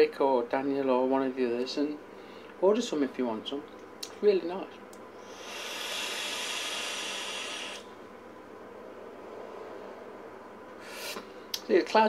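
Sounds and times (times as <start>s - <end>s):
hiss of air drawn through vape: 5.2s - 7.9s, 10.8s - 11.3s.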